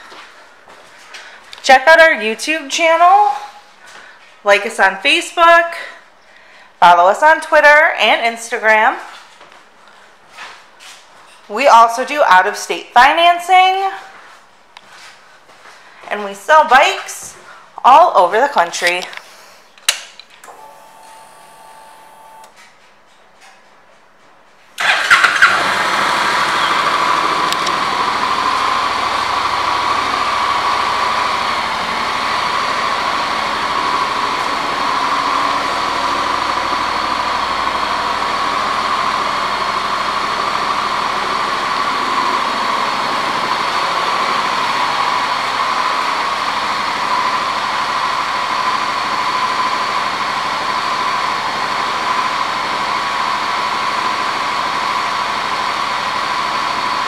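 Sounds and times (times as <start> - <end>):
motorcycle engine starting and idling: 20.4 - 22.6, 24.8 - 57.0.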